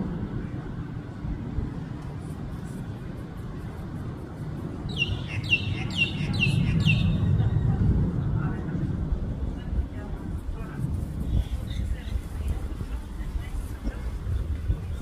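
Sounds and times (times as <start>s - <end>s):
distant jet airliner rumble: 0.0s - 15.0s
bird chirping: 4.9s - 7.4s.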